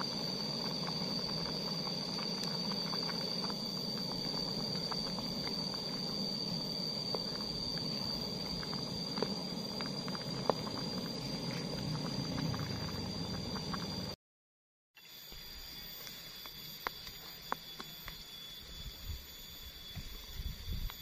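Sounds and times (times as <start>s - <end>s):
gas burner hiss: 0.0s - 14.2s
soup bubbling in a pot: 0.0s - 14.2s.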